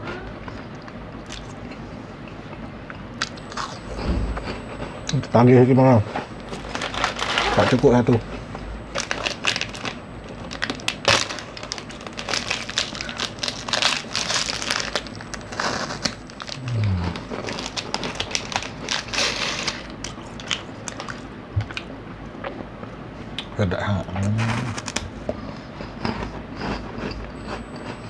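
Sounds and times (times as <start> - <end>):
plastic wrapper crinkling: 6.4 - 7.8, 8.9 - 21.2.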